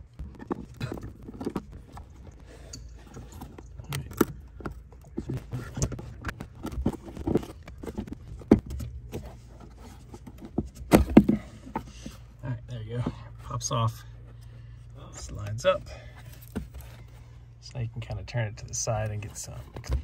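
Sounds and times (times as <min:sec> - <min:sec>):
plastic cover scraping and clicking: 0:03.1 - 0:12.2, 0:19.0 - 0:20.0.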